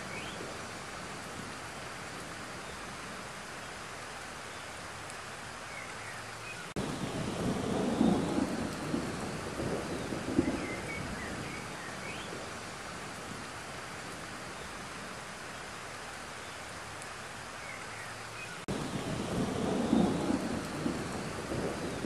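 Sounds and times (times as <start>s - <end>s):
rain falling on pond: 0.0s - 22.0s
thunder rumbling: 6.8s - 13.5s, 18.7s - 22.0s.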